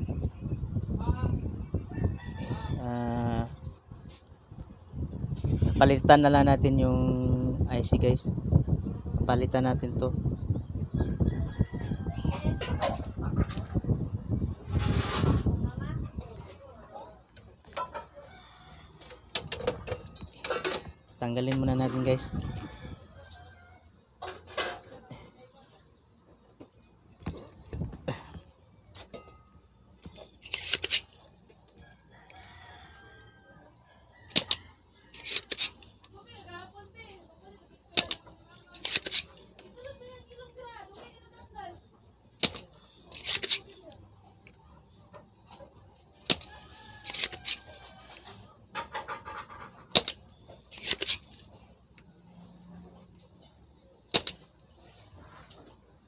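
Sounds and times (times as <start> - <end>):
desoldering pump snapping: 30.4 - 31.2, 34.3 - 36.1, 37.9 - 39.9, 42.4 - 43.7, 46.3 - 47.6, 49.9 - 51.4, 54.1 - 54.7.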